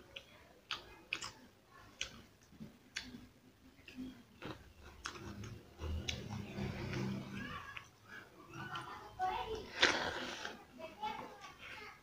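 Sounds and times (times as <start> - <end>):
chewing and lip smacking: 0.1 - 3.2, 3.8 - 9.0.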